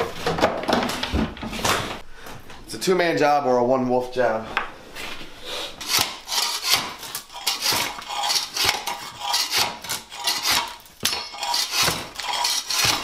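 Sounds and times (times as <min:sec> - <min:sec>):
floor scraper rasping on concrete: 0:05.8 - 0:13.0.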